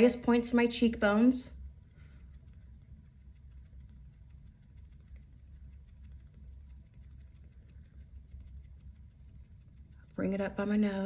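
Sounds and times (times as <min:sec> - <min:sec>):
low steady hum: 0:00.0 - 0:11.0
faint rapid ticks: 0:01.9 - 0:10.3.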